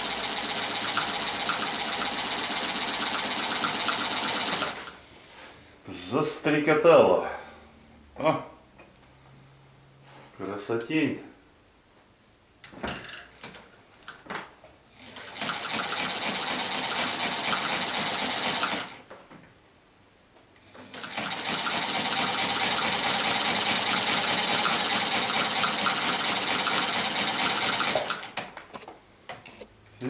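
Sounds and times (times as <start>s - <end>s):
sewing machine clattering: 0.1s - 5.0s, 15.1s - 19.0s, 20.8s - 28.5s.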